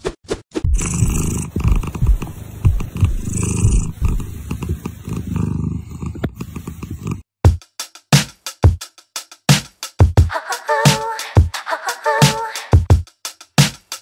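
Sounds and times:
cat purring: 0:00.7 - 0:07.2.

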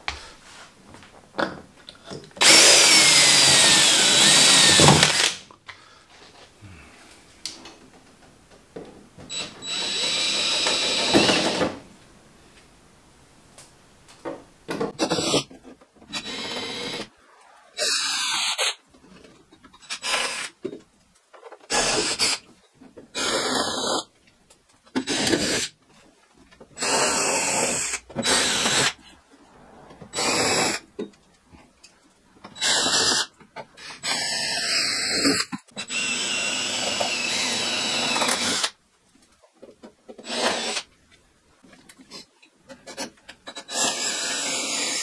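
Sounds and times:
cordless drill running: 0:02.4 - 0:05.4, 0:09.3 - 0:11.6, 0:35.8 - 0:38.7.

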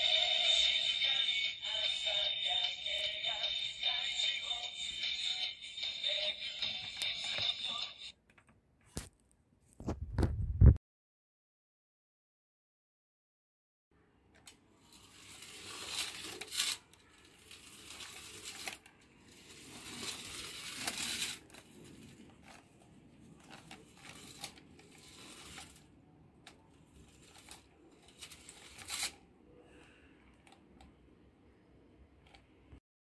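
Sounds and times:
toy robot motor whirring: 0:14.8 - 0:22.6, 0:23.4 - 0:25.9, 0:27.0 - 0:29.2
plastic clicks and rattles: 0:20.8 - 0:25.8.

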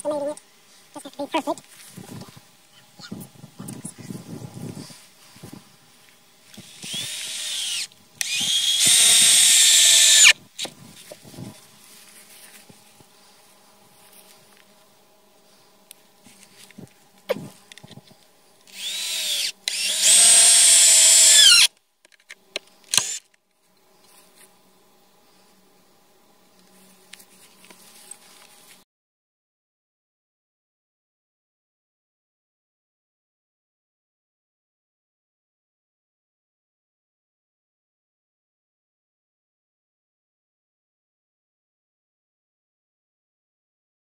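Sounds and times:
cordless drill whining: 0:06.6 - 0:10.4, 0:18.7 - 0:21.7, 0:22.9 - 0:23.2.

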